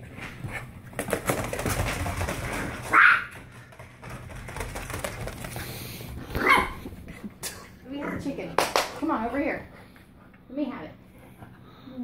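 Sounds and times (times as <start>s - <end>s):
dog claws clattering on plastic mats: 0.9s - 5.8s.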